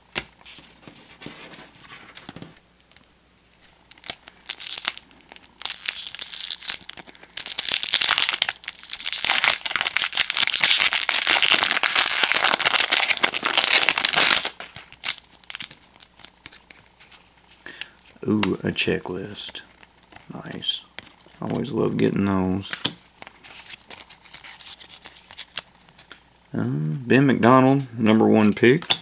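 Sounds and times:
wrapper tearing and crinkling: 0:03.6 - 0:17.2, 0:23.2 - 0:26.1.

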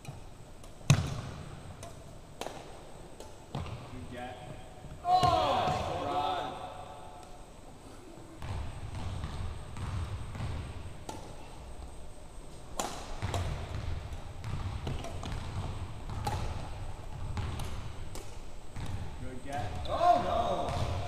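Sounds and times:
racket striking shuttlecock: 0:00.0 - 0:03.8, 0:09.8 - 0:11.9, 0:12.7 - 0:21.0.

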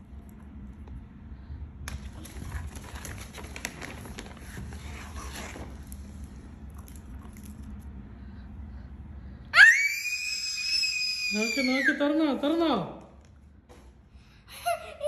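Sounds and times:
low background hum: 0:00.0 - 0:15.0
wrapping crinkling and crackling: 0:01.9 - 0:07.8.

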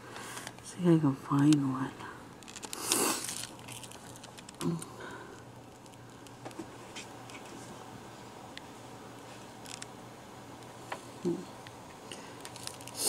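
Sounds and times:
faint clicks and taps: 0:05.8 - 0:07.7.

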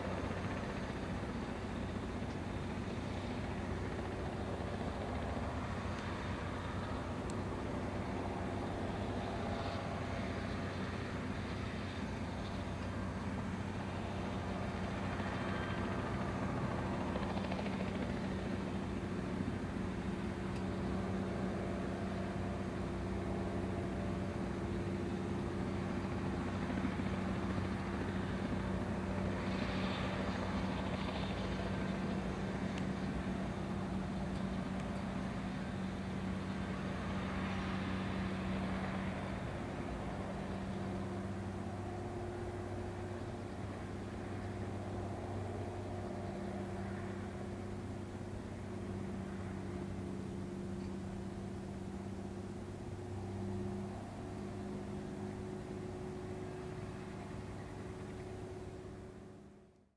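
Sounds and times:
helicopter idling on the ground: 0:00.0 - 0:59.9.

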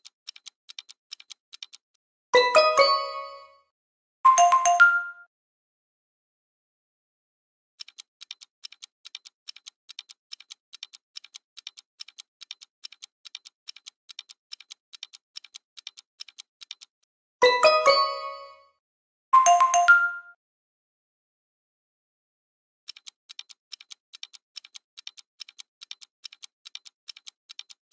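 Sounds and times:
clock ticking: 0:00.0 - 0:03.6, 0:07.8 - 0:18.6, 0:22.9 - 0:27.9.

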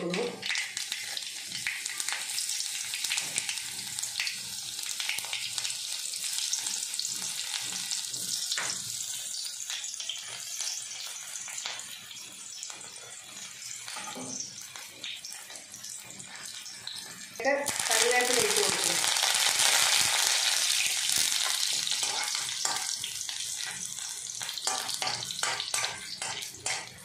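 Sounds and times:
shallots sizzling in hot oil: 0:00.0 - 0:27.0
crackles and pops: 0:17.6 - 0:26.8.

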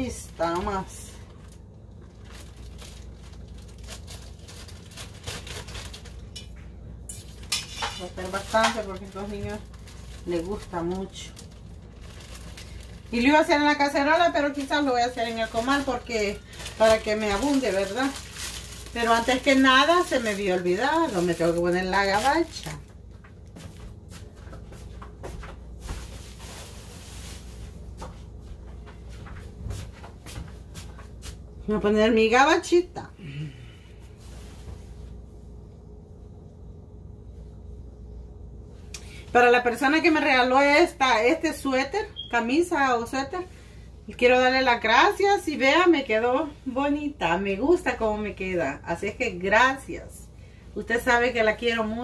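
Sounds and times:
steady low hum: 0:00.0 - 0:52.0
plastic bag crinkling: 0:00.6 - 0:06.4, 0:07.2 - 0:23.5.

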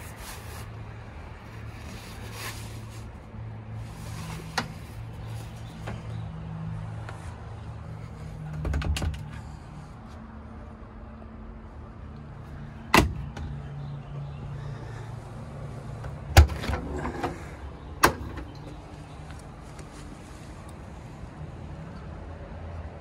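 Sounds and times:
latches and panels clicking: 0:16.0 - 0:18.9.

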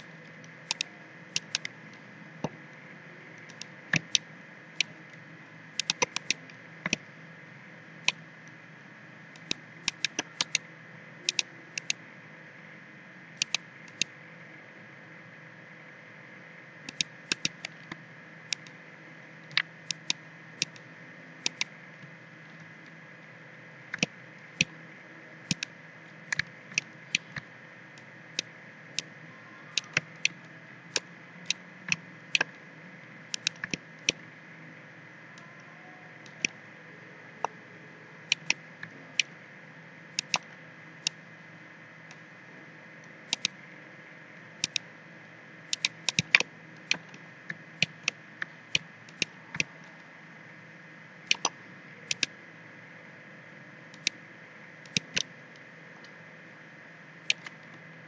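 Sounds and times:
low hum of computer: 0:00.0 - 0:58.0
computer mouse and keyboard clicks: 0:00.6 - 0:01.8, 0:03.4 - 0:04.9, 0:05.8 - 0:07.0, 0:09.4 - 0:10.6, 0:11.2 - 0:12.0, 0:13.4 - 0:14.1, 0:16.9 - 0:18.8, 0:19.5 - 0:20.8, 0:21.4 - 0:21.7, 0:25.5 - 0:25.7, 0:33.3 - 0:34.2, 0:38.3 - 0:39.3, 0:40.2 - 0:41.2, 0:43.3 - 0:43.6, 0:44.6 - 0:44.8, 0:45.7 - 0:47.2, 0:51.3 - 0:52.3, 0:54.9 - 0:55.3, 0:57.3 - 0:57.8.

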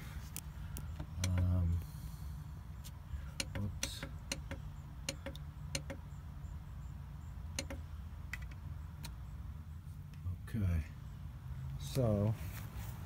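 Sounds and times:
push buttons clicking: 0:07.6 - 0:09.2.

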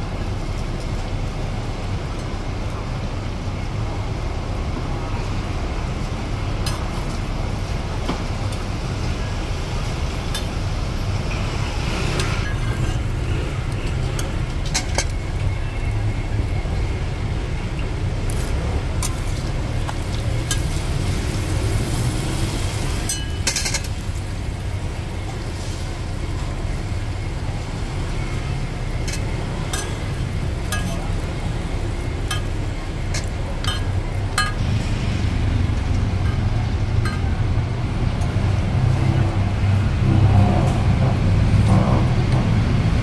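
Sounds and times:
road traffic rumble: 0:00.0 - 0:43.0
spatula clinking on metal griddle: 0:23.1 - 0:24.0.

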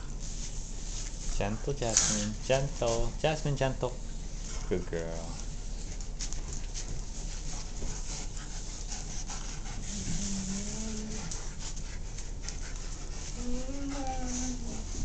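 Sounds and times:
dogs panting and scuffling: 0:00.0 - 0:15.0
dog whining: 0:13.4 - 0:15.0.

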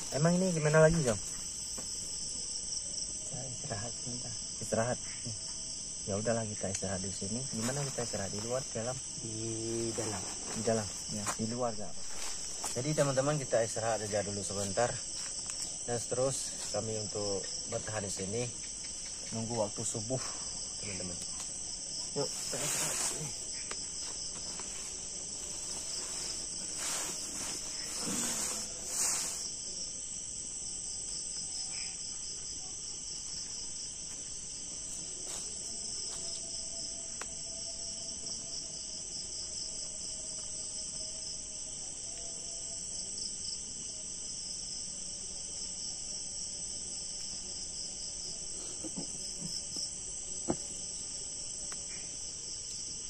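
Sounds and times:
crickets chirring: 0:00.0 - 0:53.0
rustling: 0:09.6 - 0:13.2, 0:22.1 - 0:29.5.

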